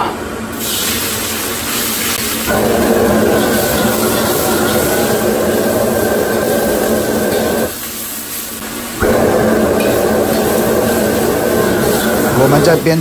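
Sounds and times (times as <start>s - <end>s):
gas burner roaring: 0.0s - 13.0s
meat sizzling in a wok: 0.5s - 13.0s.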